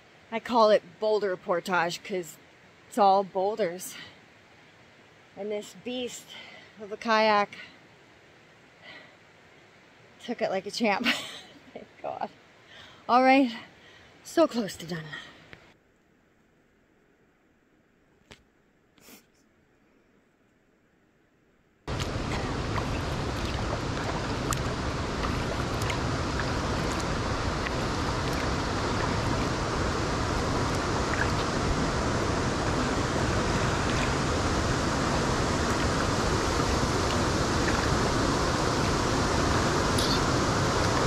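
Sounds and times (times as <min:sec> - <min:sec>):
waterfall rushing over rock: 0:21.9 - 0:41.0.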